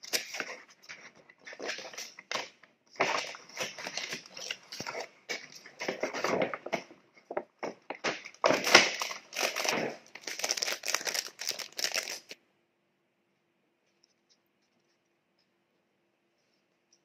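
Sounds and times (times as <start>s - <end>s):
paper and plastic bags crinkling: 0.0s - 12.4s.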